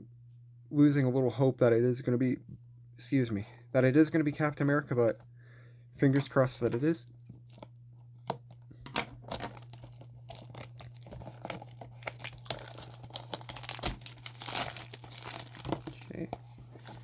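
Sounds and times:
plastic wrap crinkling and tearing: 0:07.2 - 0:17.0
scissors snipping shrink wrap: 0:08.2 - 0:17.0.

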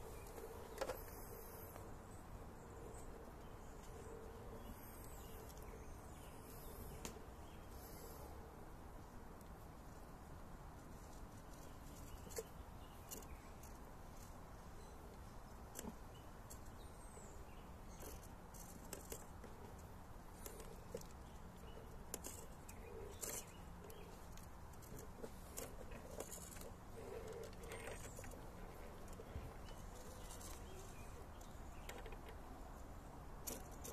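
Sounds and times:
small ticks: 0:17.9 - 0:32.4.

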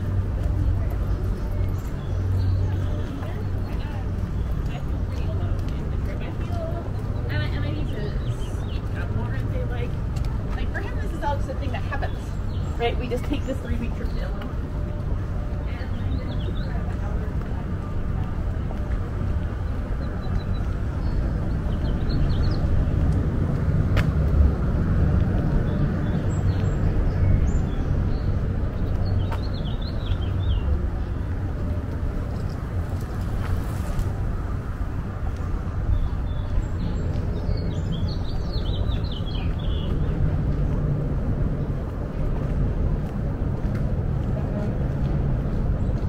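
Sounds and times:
road traffic rumble: 0:00.0 - 0:46.0
small birds chirping: 0:25.6 - 0:31.3, 0:35.9 - 0:40.2.

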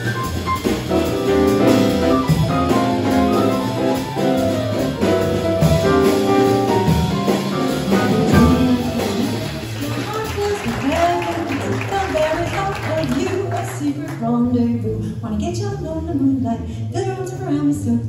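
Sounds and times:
drum kit: 0:00.0 - 0:14.2
piano: 0:00.0 - 0:18.0
upright bass: 0:00.0 - 0:18.0.

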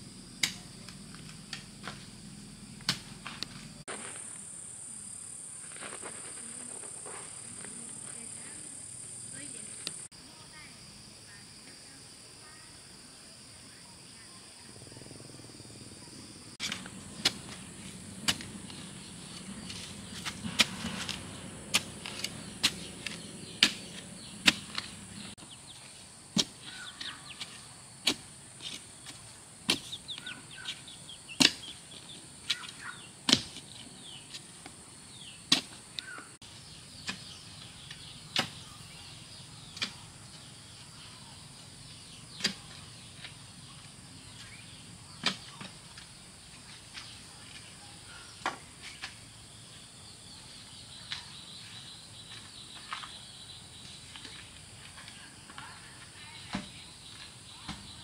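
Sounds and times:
sharp hand tool strikes: 0:00.4 - 0:00.6, 0:02.8 - 0:03.4, 0:18.2 - 0:18.8, 0:19.6 - 0:25.0, 0:31.4 - 0:31.8, 0:33.3 - 0:33.6.

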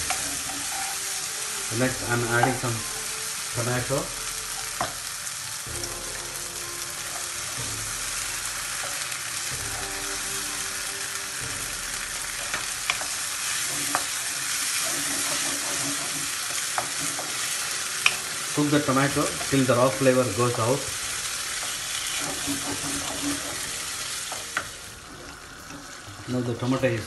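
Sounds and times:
masala sizzling in frying pan: 0:00.0 - 0:27.0
wooden spoon clicking on pan: 0:14.8 - 0:18.3.

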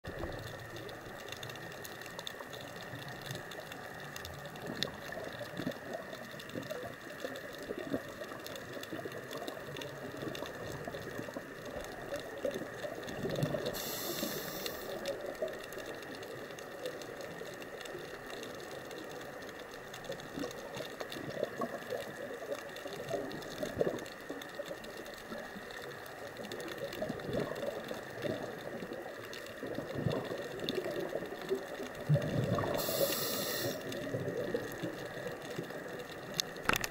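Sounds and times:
faint crackles: 0:00.0 - 0:36.9
muffled underwater rush: 0:00.0 - 0:36.9
brief high hiss: 0:13.8 - 0:14.9, 0:32.8 - 0:33.8.

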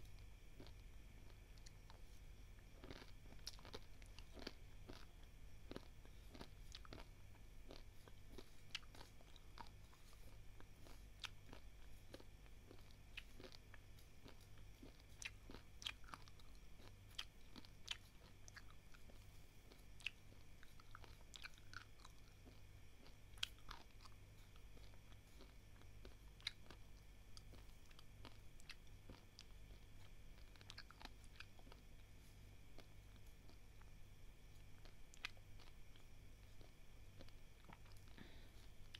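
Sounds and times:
person chewing dry rice: 0:00.0 - 0:38.9.

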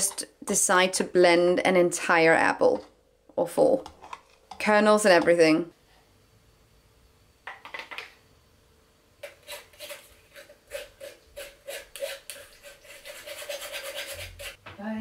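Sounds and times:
spoon scraping metal sieve: 0:09.2 - 0:14.6.

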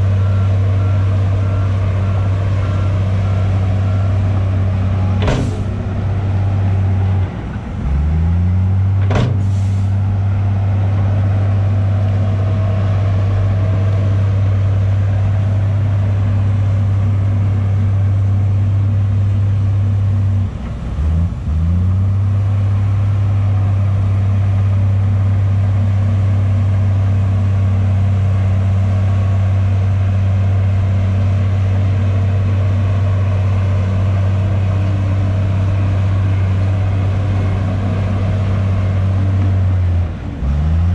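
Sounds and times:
diesel engine droning: 0:00.0 - 0:40.9.

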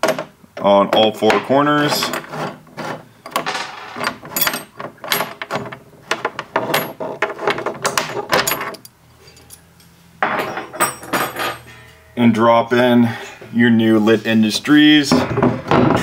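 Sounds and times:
metal tool clinking on bolt: 0:04.3 - 0:05.3, 0:08.4 - 0:09.6, 0:10.4 - 0:11.8.

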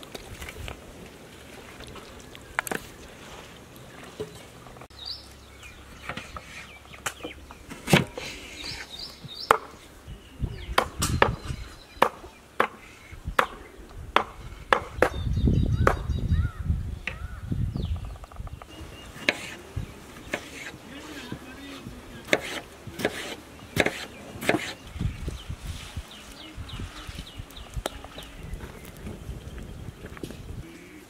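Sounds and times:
knife chopping on wooden board: 0:22.3 - 0:24.8.

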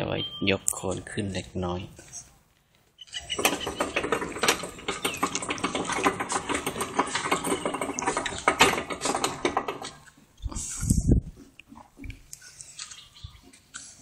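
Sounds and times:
small engine rattling: 0:03.1 - 0:10.1.

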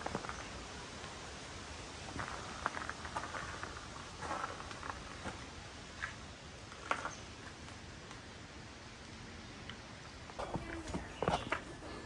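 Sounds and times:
footsteps crunching on trail: 0:02.0 - 0:06.2.

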